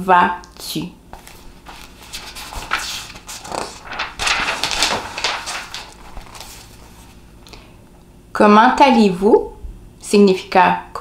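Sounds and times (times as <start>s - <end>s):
paper cards rustling and scraping: 1.1s - 7.6s.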